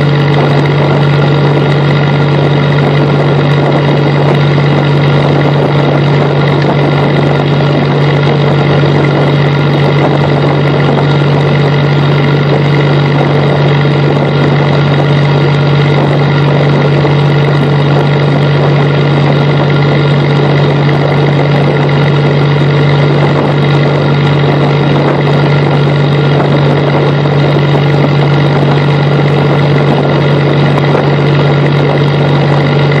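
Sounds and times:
boat engine droning: 0:00.0 - 0:33.0.

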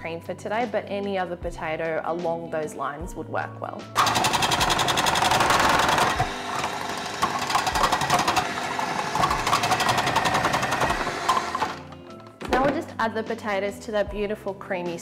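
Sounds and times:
food processor slicing potatoes: 0:04.0 - 0:12.1.

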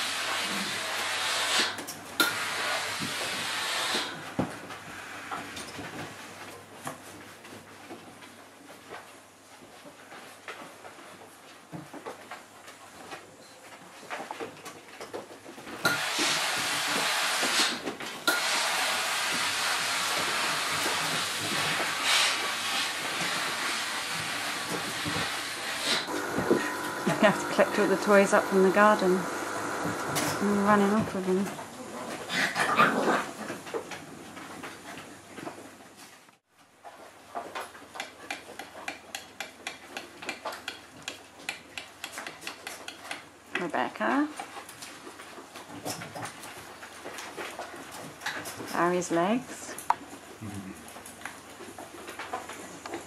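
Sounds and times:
loud steady hiss: 0:00.0 - 0:04.3, 0:15.8 - 0:31.0
puppy claws clicking on floor: 0:37.4 - 0:43.7
puppies scrabbling at toys: 0:44.3 - 0:48.9.

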